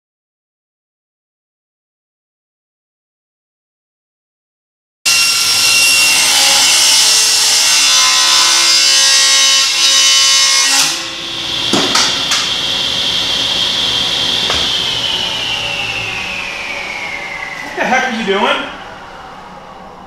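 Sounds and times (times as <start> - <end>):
table saw cutting board: 5.1 - 19.0
saw blade whining: 5.1 - 20.0
knocks: 11.7 - 12.5, 14.4 - 14.8.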